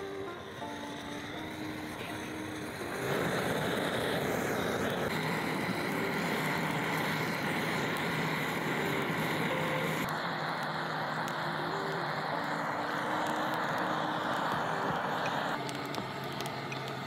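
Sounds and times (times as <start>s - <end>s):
gas torch flame jet: 0.0s - 17.0s.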